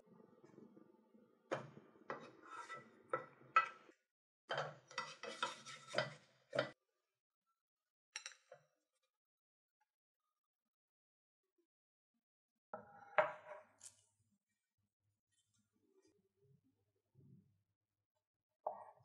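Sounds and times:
utensils clinking on cookware: 4.5s - 6.8s.

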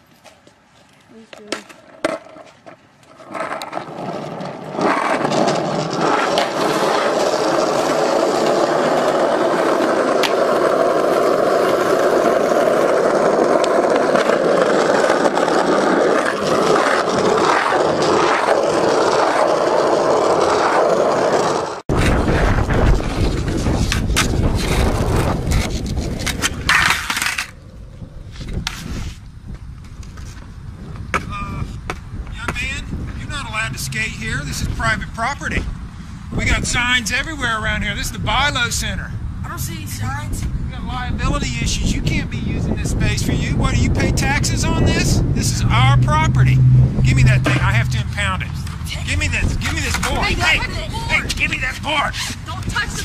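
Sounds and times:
skateboard wheels rolling on asphalt: 0.0s - 53.0s
heavy low rumble: 39.0s - 51.5s.

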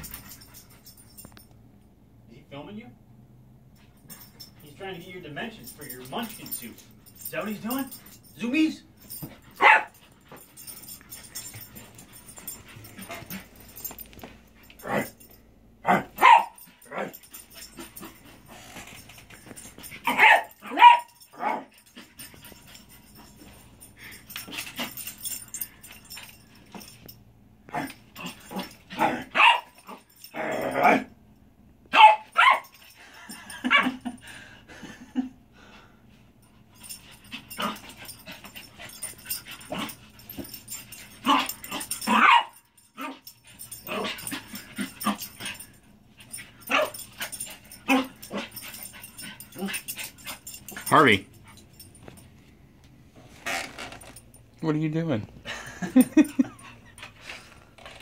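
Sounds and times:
small dog barking and yipping: 9.2s - 13.9s, 15.8s - 18.4s, 19.7s - 23.5s, 27.7s - 31.1s, 31.9s - 33.0s, 33.6s - 34.0s, 37.2s - 51.7s.

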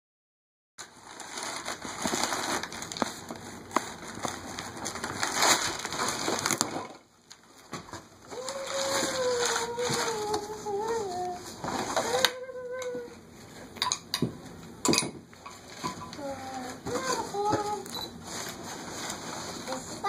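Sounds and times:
packing paper rustling: 0.8s - 13.6s, 15.6s - 20.0s.

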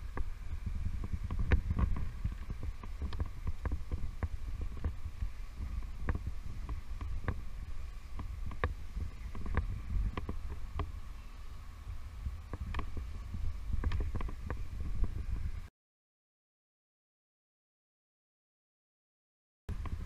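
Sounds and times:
wind buffeting microphone: 0.0s - 15.7s, 19.7s - 20.0s.

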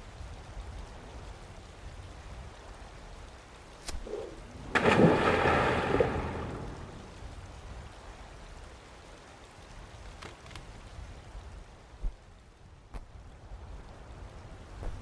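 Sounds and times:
water and spray settling: 3.7s - 7.5s
large splash into water: 4.7s - 7.0s.

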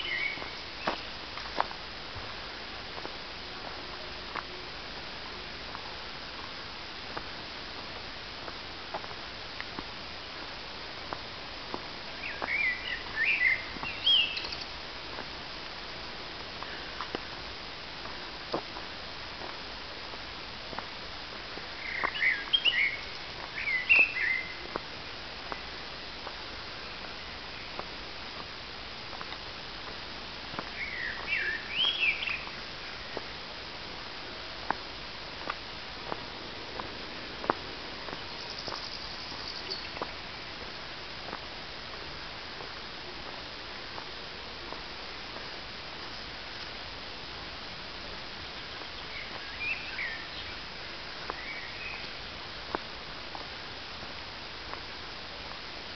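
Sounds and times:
songbird chirping: 0.0s - 1.7s, 12.0s - 14.8s, 21.7s - 25.8s, 30.6s - 33.4s, 36.8s - 40.6s, 48.4s - 52.3s
steady hiss: 0.0s - 55.9s
footsteps on dirt trail: 0.1s - 5.0s, 5.7s - 55.8s.

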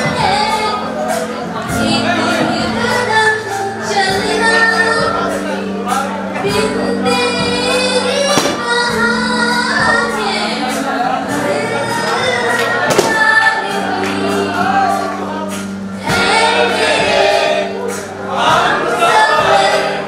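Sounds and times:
voices singing: 0.0s - 20.0s
percussive hits: 8.4s - 8.8s, 12.9s - 13.4s.

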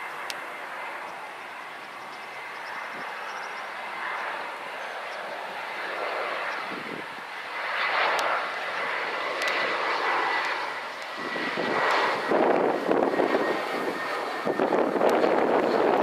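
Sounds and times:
jet engines rushing with whine: 0.0s - 16.0s.

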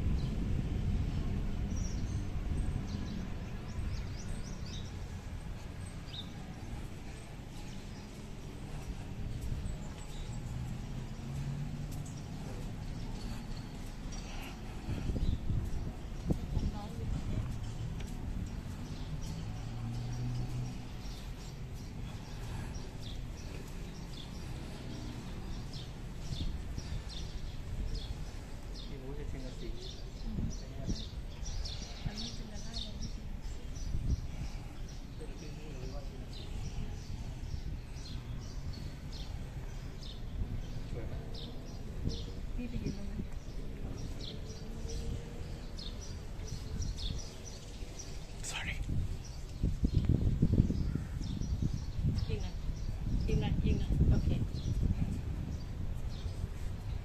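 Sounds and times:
steady low rumble: 0.0s - 28.8s
small birds chirping: 0.0s - 57.0s.

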